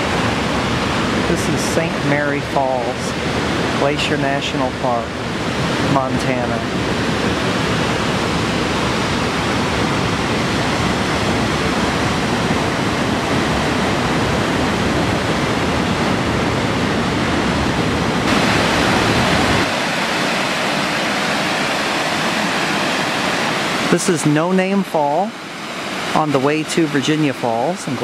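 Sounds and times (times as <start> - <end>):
waterfall rushing into rock pools: 18.3 - 28.0.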